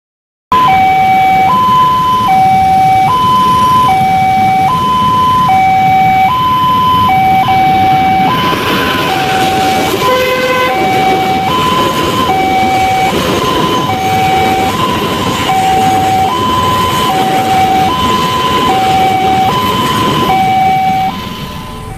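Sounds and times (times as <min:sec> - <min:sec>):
level crossing two-tone alarm: 0:00.5 - 0:21.9
passing train rushing: 0:00.6 - 0:21.9
train horn blast: 0:09.1 - 0:11.5.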